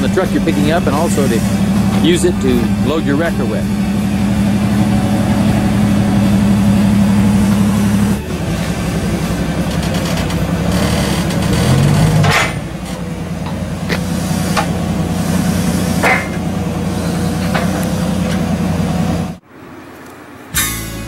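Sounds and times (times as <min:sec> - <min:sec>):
forklift engine running: 0:00.0 - 0:21.0
sharp metal clanks: 0:11.2 - 0:12.8, 0:16.0 - 0:16.5.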